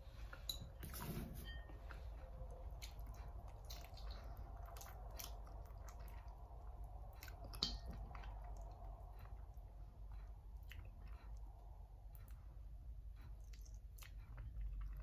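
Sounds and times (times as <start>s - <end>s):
chewing clicks: 2.7s - 12.5s, 13.1s - 15.0s
wet sucking and smacking: 2.7s - 12.5s.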